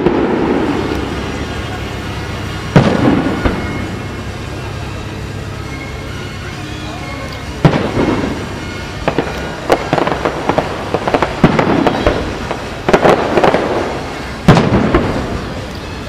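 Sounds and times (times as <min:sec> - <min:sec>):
firework shells booming: 0:00.0 - 0:04.2, 0:07.5 - 0:16.0
firework crackling: 0:00.0 - 0:16.0.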